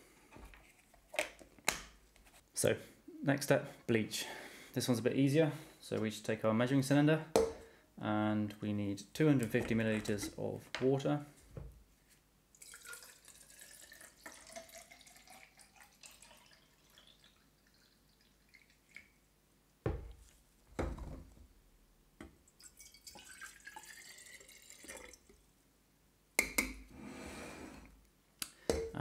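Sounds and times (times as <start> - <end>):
water pouring into cylinder: 12.6 - 19.1, 22.6 - 25.4.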